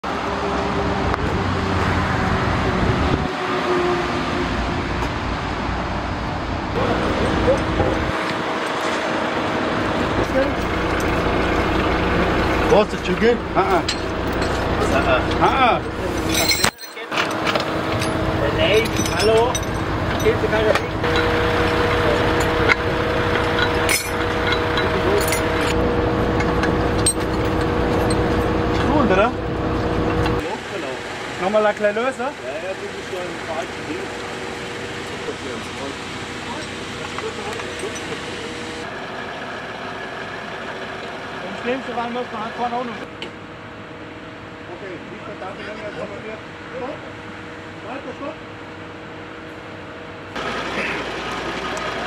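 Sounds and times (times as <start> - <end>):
diesel engine idling: 0.0 - 16.5, 17.1 - 45.5, 49.9 - 52.0
metallic clinks: 12.6 - 25.8, 36.6 - 38.4.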